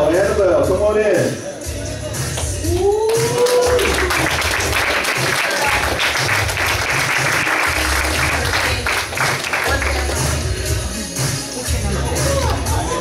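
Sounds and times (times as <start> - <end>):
music with pulsing bass beat: 1.6 - 13.0
audience clapping: 2.2 - 11.5.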